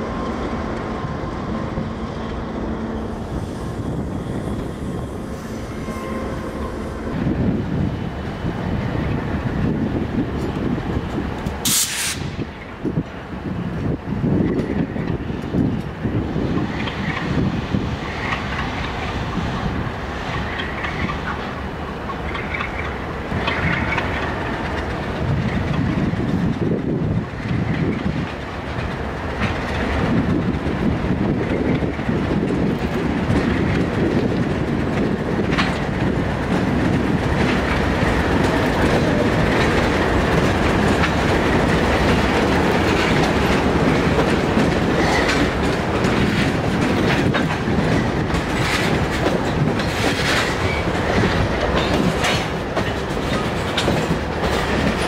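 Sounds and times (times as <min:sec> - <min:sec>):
diesel locomotives rumbling: 0:00.0 - 0:55.0
train wheels clicking over rail joints: 0:14.3 - 0:55.0.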